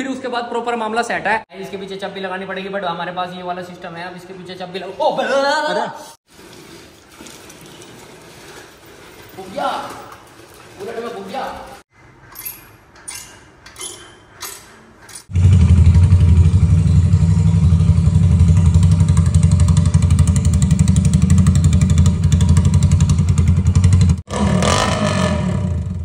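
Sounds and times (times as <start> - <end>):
motorcycle engine idling: 15.3 - 24.2.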